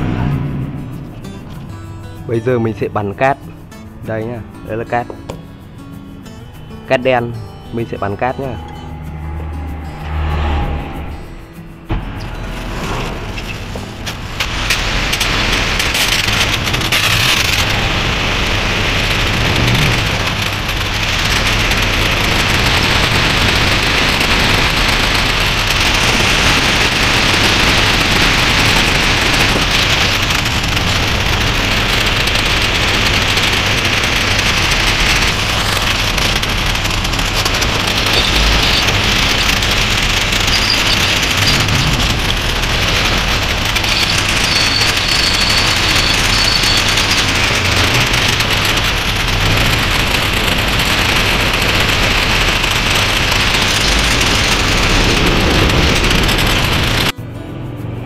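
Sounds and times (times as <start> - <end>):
pressure washer spraying metal: 14.1 - 57.0.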